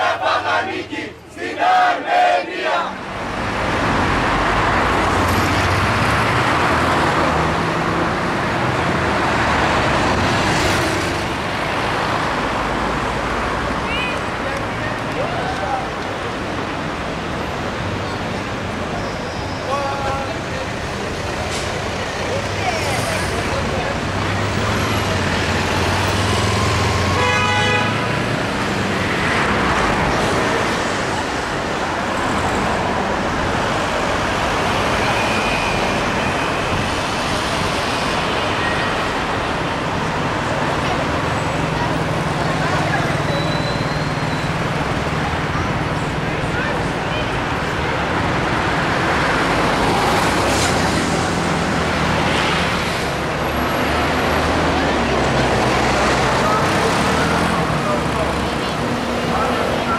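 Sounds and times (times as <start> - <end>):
street traffic passing: 0.0 - 59.9
vehicle horn toot: 26.9 - 28.0.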